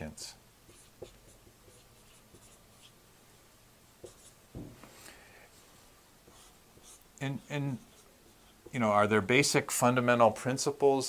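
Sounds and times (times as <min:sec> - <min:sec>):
marker squeaking on a whiteboard: 0:00.7 - 0:03.0, 0:04.0 - 0:04.3, 0:06.3 - 0:08.8
soft thump: 0:04.5 - 0:05.0.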